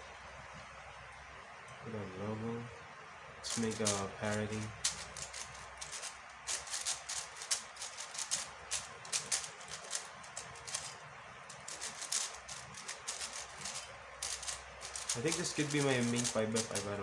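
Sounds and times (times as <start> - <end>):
plastic puzzle cube clicking: 3.5 - 17.0.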